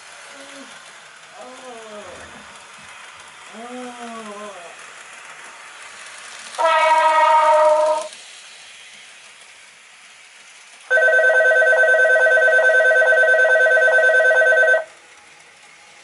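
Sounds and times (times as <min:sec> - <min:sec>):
electric bell ringing rapidly: 0:10.9 - 0:14.9.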